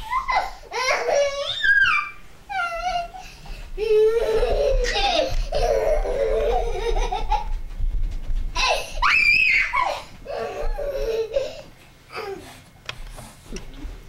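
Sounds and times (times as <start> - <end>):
child squealing: 0.0 - 3.2, 8.6 - 11.3
small child laughing: 0.0 - 7.7, 9.7 - 12.4.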